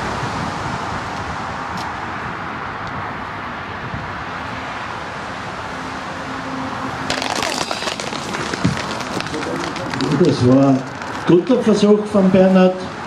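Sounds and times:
steady rushing outdoor noise: 0.0 - 13.0
dense crackling clatter: 7.1 - 11.8.

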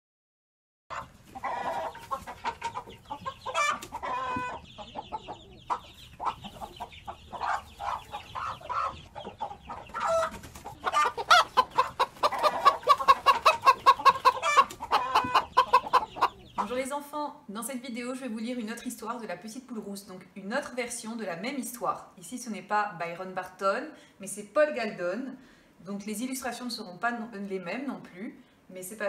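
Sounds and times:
hens clucking: 0.9 - 17.0.

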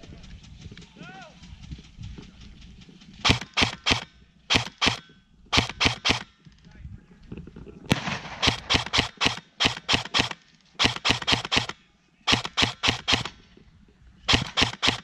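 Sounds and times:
airsoft gun shots: 3.2 - 6.3, 7.9 - 13.4, 14.3 - 15.0.

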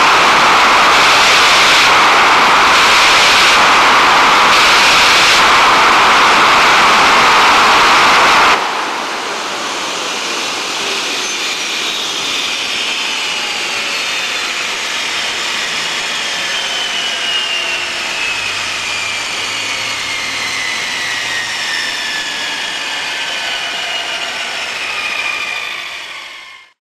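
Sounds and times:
jet engine running loud: 0.0 - 26.8
turbine whine spinning down: 0.0 - 26.8.

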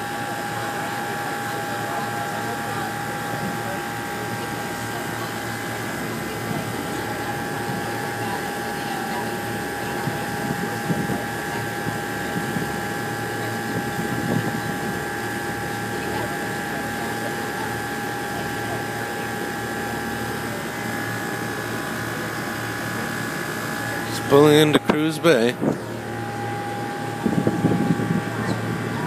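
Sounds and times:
ferry engines droning: 0.0 - 29.0
indistinct voices: 0.0 - 29.0.

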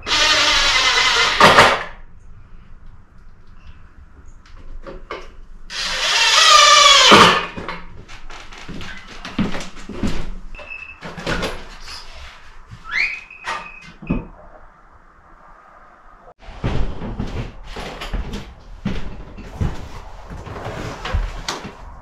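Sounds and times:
power drill whining: 0.0 - 1.6, 5.7 - 7.5
knocks and clatter of materials: 16.4 - 22.0.

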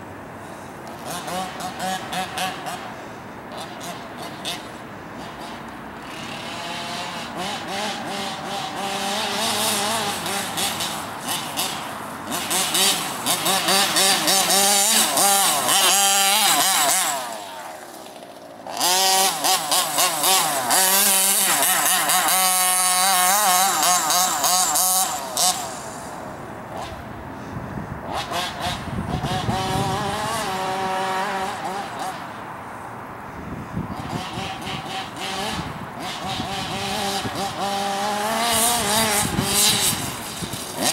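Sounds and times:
small two-stroke engine revving: 0.8 - 32.5, 33.4 - 40.9.

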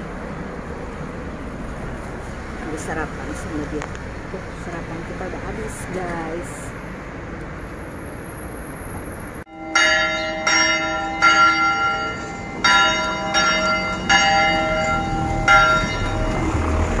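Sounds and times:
street noise: 0.0 - 17.0
church bells ringing: 9.5 - 17.0.

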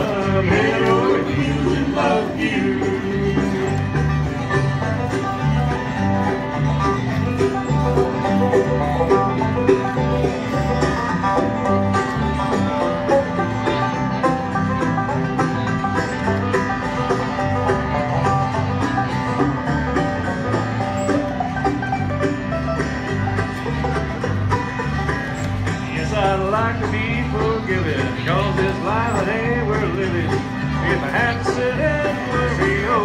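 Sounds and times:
banjo picking: 0.0 - 33.0
bass line: 0.0 - 33.0
bluegrass band playing: 0.0 - 33.0.

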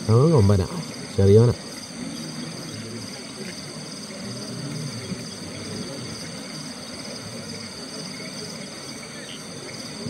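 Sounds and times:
crickets trilling: 0.0 - 10.0.

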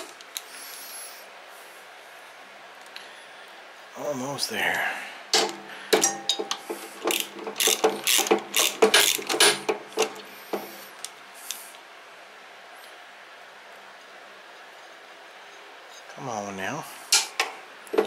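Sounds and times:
ratchet wrench clicking: 6.0 - 10.2.

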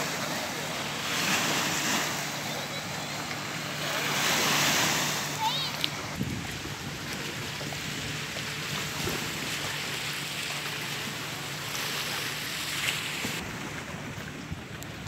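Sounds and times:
waves lapping on a stony shore: 0.0 - 15.0
wind on microphone: 6.0 - 9.5.

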